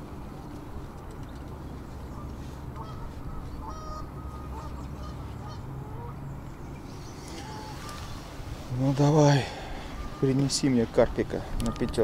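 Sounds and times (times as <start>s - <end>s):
waterfowl calling: 2.0s - 6.4s, 7.2s - 12.0s.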